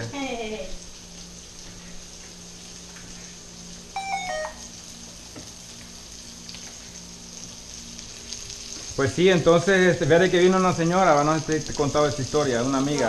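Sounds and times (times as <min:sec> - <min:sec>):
ham frying in a wok: 0:00.0 - 0:13.0
smartphone beep tones: 0:04.0 - 0:04.7.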